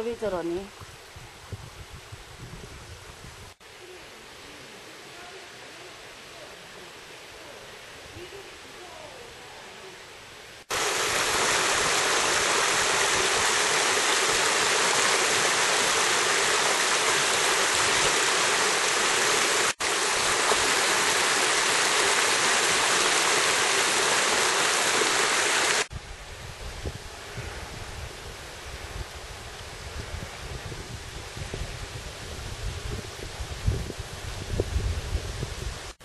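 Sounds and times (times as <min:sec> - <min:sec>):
rushing stream water: 0:10.4 - 0:25.9.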